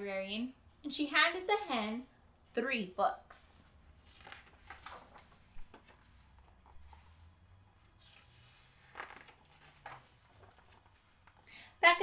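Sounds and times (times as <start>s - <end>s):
book pages rustling: 3.9s - 11.5s.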